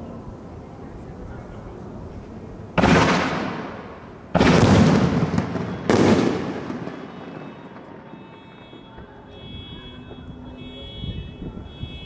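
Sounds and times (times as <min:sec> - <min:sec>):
fireworks booming: 0:02.8 - 0:10.3.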